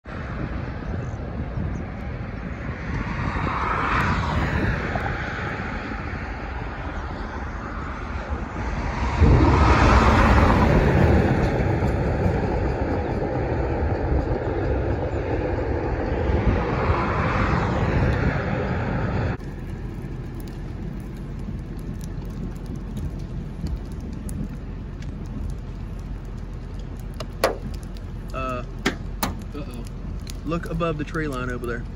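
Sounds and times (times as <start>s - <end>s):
road noise rush: 0.0s - 31.9s
vehicles passing: 0.0s - 31.9s.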